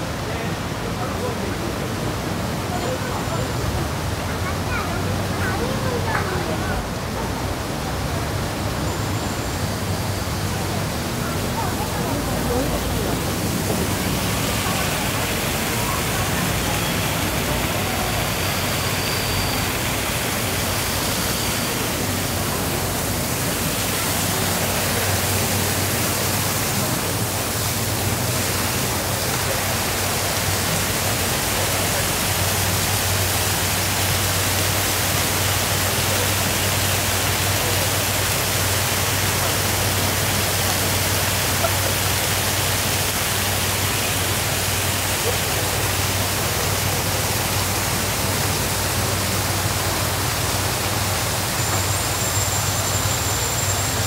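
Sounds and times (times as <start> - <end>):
stream water rushing: 0.0 - 54.0.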